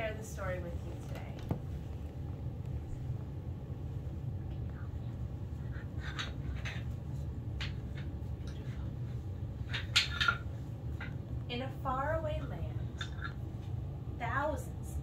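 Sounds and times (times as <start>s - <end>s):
low hum: 0.0s - 15.0s
wooden figures clacking: 9.6s - 11.2s.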